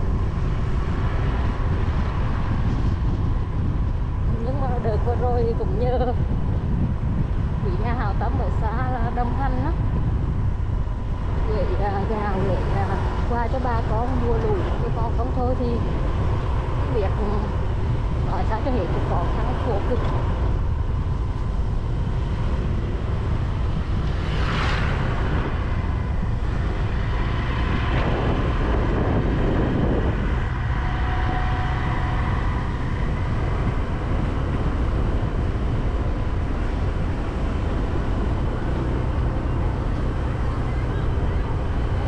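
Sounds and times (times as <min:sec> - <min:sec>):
vehicle rumble: 0:00.0 - 0:42.0
whooshing pass: 0:00.0 - 0:42.0
wind on microphone: 0:00.0 - 0:42.0
faint steady tone: 0:29.0 - 0:42.0.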